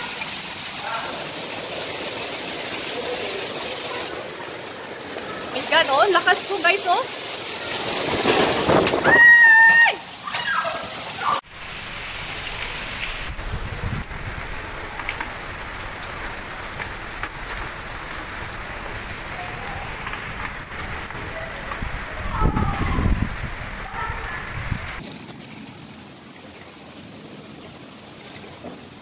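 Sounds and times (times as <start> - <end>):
heavy rain pouring: 0.0 - 29.0
wind buffeting microphone: 12.7 - 16.1, 16.8 - 25.0.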